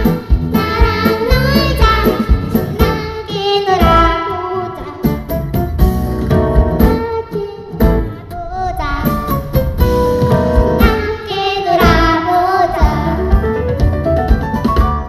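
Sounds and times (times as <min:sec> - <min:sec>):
girls singing a duet: 0:00.0 - 0:05.2, 0:10.6 - 0:13.6
instrumental accompaniment with beat: 0:00.0 - 0:08.4, 0:09.1 - 0:15.0.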